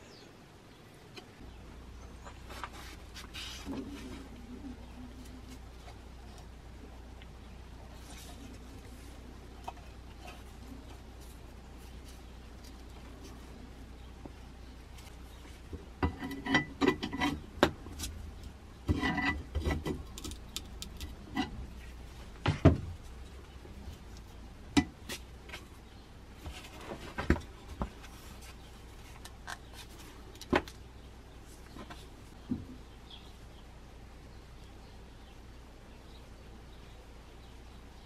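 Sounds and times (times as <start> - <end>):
wood and metal taps and knocks: 15.7 - 21.5.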